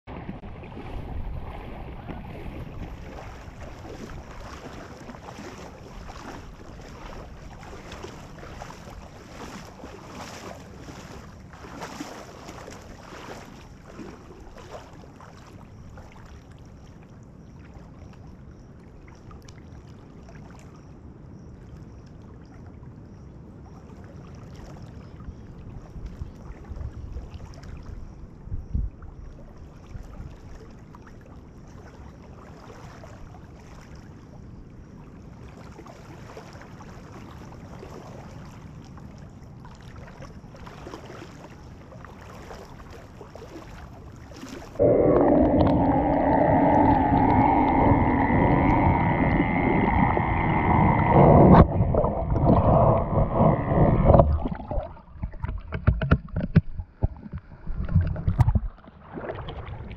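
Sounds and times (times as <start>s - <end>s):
wind rumble on microphone: 0.1s - 16.4s, 20.8s - 31.0s, 43.6s - 59.9s
water sloshing around wading person: 0.1s - 20.8s, 29.3s - 34.4s, 35.0s - 59.9s
low bumps: 44.8s - 58.7s.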